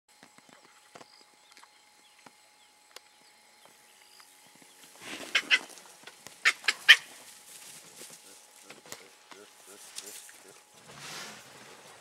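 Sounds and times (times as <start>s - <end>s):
baboons screaming: 5.0s - 7.2s, 8.1s - 10.7s.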